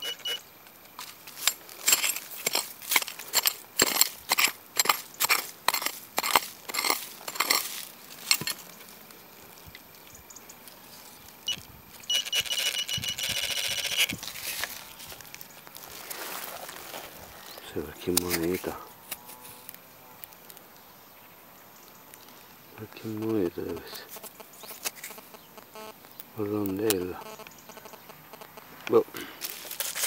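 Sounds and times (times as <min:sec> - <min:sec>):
metal detector beeps: 0:00.0 - 0:00.5, 0:11.4 - 0:14.2
metal detector steady high tone: 0:00.0 - 0:04.9, 0:11.4 - 0:15.2, 0:25.0 - 0:26.0, 0:27.1 - 0:28.5.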